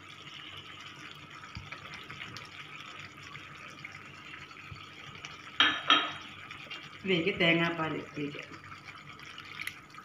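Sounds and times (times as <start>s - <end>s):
stew simmering with bubbling: 0.0s - 10.0s.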